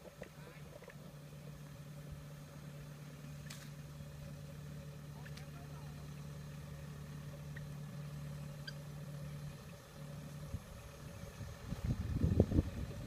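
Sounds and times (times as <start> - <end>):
distant machine engine hum: 0.0 - 13.0
wind gusts rumbling on microphone: 10.4 - 13.0.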